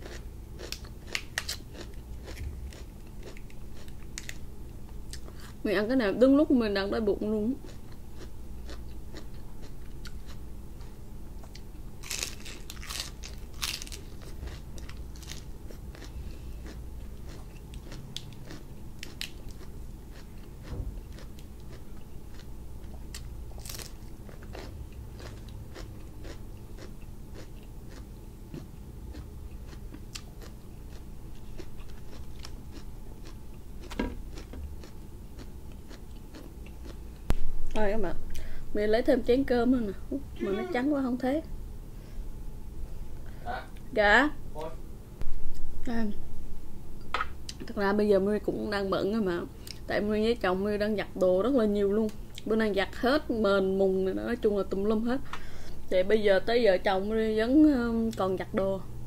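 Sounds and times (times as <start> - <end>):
person chewing crisp lettuce: 0.0 - 4.4, 7.6 - 37.2
low steady hum: 0.0 - 59.0.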